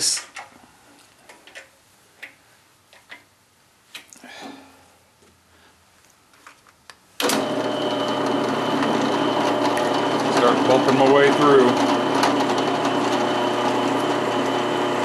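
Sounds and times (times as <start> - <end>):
drill press motor humming: 7.2 - 15.0.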